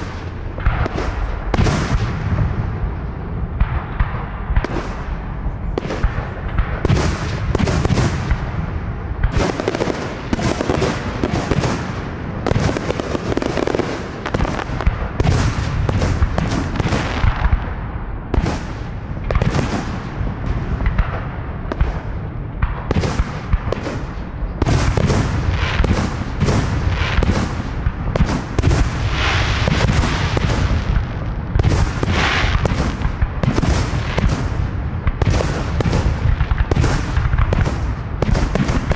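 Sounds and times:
low rumble: 0:00.0 - 0:09.4.

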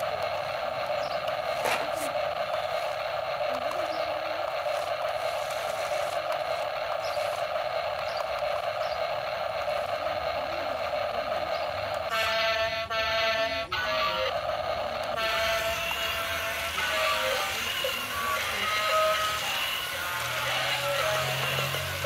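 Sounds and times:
toy car electric motors whirring: 0:00.0 - 0:22.0
buzzy horn honk: 0:12.1 - 0:14.3, 0:15.1 - 0:17.5.

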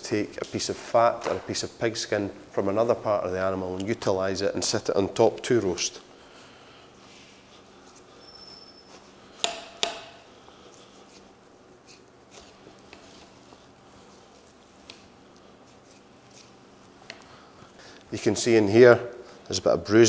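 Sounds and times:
knife scraping and clicking: 0:15.7 - 0:17.2.

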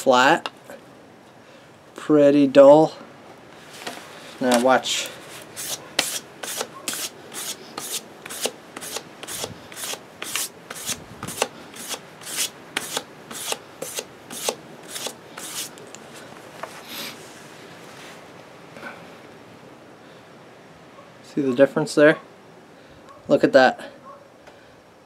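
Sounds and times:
sandpaper stroking steel edge: 0:05.4 - 0:15.7.

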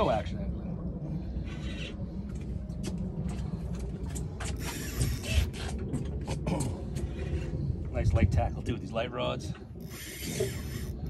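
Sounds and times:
fishing reel drag clicking: 0:04.6 - 0:05.5, 0:09.8 - 0:11.0.

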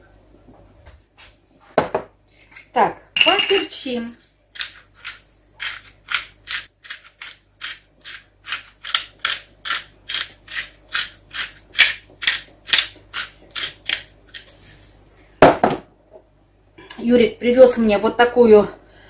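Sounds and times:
pepper mill grinding: 0:04.2 - 0:15.1.

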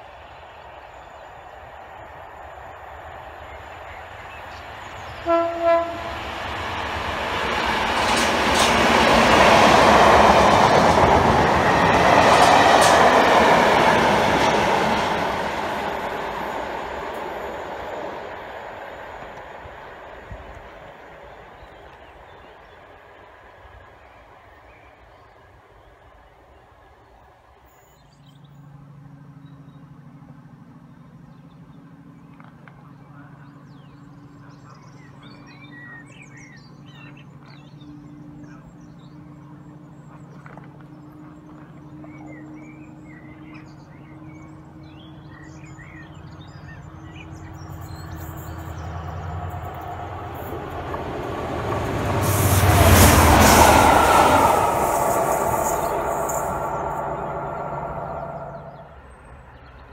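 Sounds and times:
train rushing past: 0:00.0 - 0:24.5, 0:33.2 - 0:59.8
diesel locomotive engine drone: 0:00.0 - 0:59.9
birds chirping: 0:30.9 - 0:59.9.

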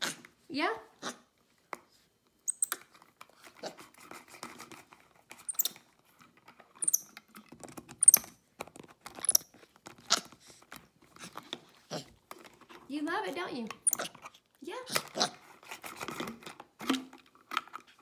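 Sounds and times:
monkey high squeaks: 0:02.5 - 0:02.8, 0:05.5 - 0:05.8, 0:06.8 - 0:07.1, 0:08.0 - 0:08.3, 0:09.2 - 0:09.5, 0:13.8 - 0:14.1
monkey gnawing plastic cap: 0:05.4 - 0:05.9, 0:06.7 - 0:12.7, 0:13.7 - 0:15.3.

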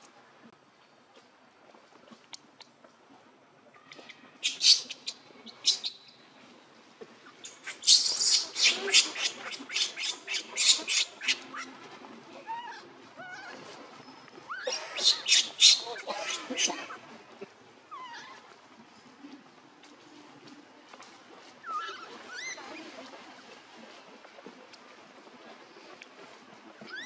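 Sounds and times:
baby monkey screaming: 0:04.4 - 0:06.0, 0:07.5 - 0:11.7, 0:14.5 - 0:17.0, 0:21.7 - 0:22.6
baby monkey whimpering: 0:14.5 - 0:17.0.

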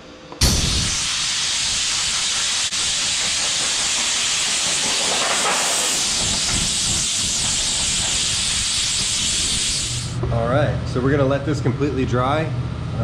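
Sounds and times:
air blow gun hissing: 0:00.4 - 0:10.2.

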